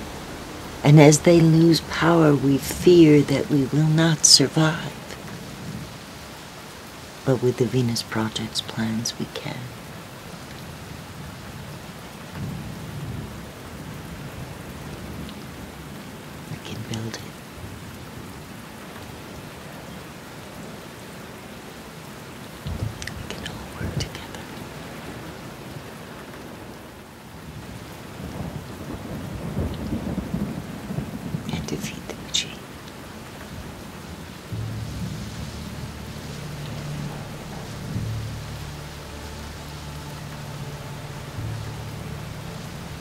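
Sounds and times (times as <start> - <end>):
rain-like hiss: 0.0 - 43.0
rolling thunder: 28.2 - 31.5, 33.0 - 43.0
low rumble: 33.4 - 43.0
thunder crack: 33.5 - 43.0.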